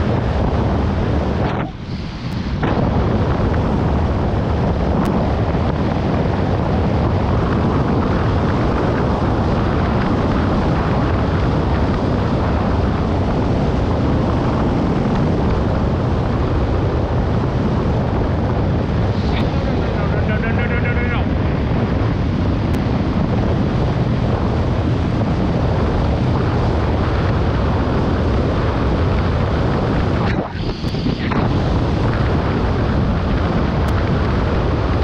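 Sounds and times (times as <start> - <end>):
wind roaring over helmet: 0.0 - 35.0.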